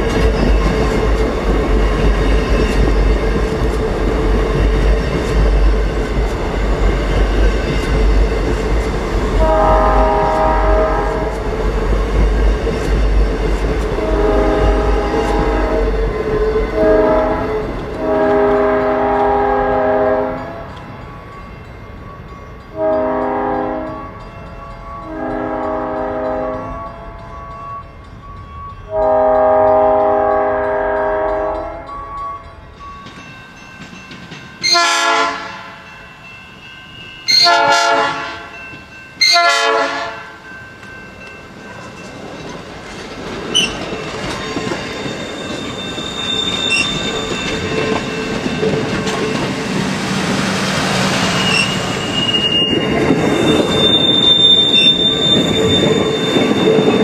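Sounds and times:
train cars rumbling by: 0.0 - 57.0
train horn blasts: 9.4 - 11.4, 14.0 - 16.0, 16.7 - 20.8, 22.8 - 24.2, 24.8 - 27.6, 28.9 - 32.4, 34.6 - 35.9, 37.3 - 38.6, 39.2 - 40.4.

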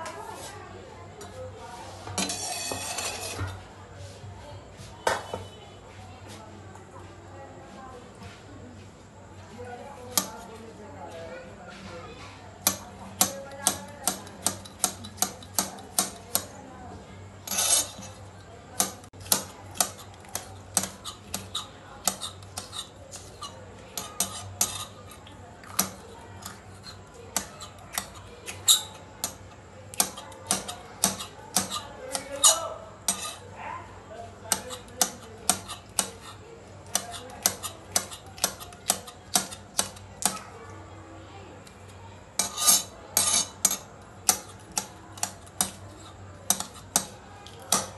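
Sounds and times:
knife chopping on stone countertop: 10.1 - 10.4, 12.6 - 16.6, 17.4 - 33.4, 34.5 - 40.5, 42.4 - 47.9.

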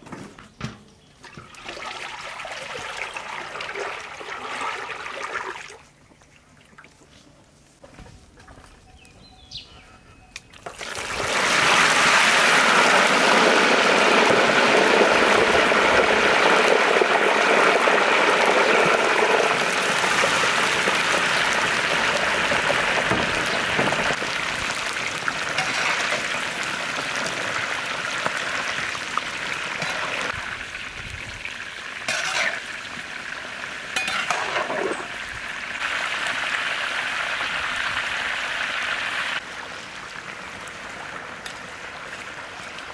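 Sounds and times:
deep-frying sizzle in oil: 10.7 - 42.9
utensil clattering in pan: 32.1 - 32.6, 34.0 - 34.9.

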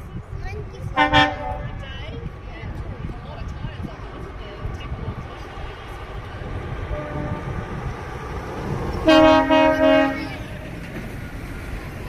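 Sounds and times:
low engine rumble: 0.0 - 12.0
truck air horn blasts: 1.0 - 1.7, 6.9 - 7.6, 9.0 - 10.4.

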